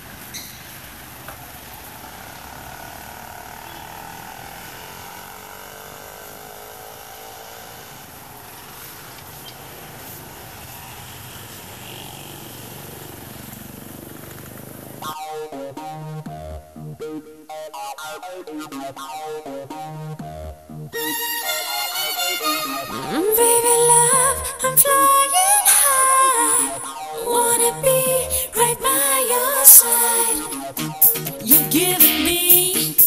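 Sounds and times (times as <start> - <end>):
faint drifting tones: 0.0 - 17.7
noisy ambience: 0.0 - 33.0
electronic pop music: 15.0 - 33.0.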